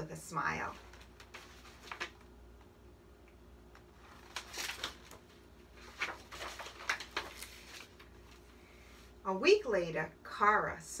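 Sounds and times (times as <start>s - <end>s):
book pages rustling: 0.6s - 2.3s, 3.8s - 9.1s.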